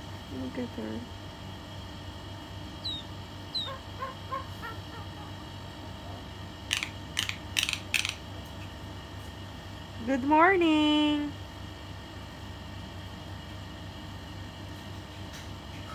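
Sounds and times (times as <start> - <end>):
bird harsh squawks: 2.8 - 5.3.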